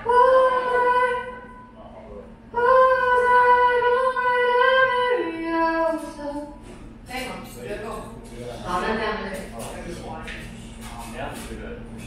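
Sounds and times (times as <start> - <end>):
woman singing long notes: 0.0 - 1.6, 2.5 - 6.5.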